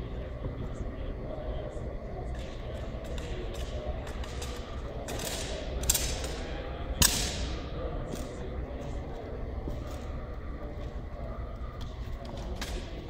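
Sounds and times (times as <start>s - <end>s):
steady low hum: 0.0s - 13.0s
sharp echoing cracks: 2.3s - 7.9s.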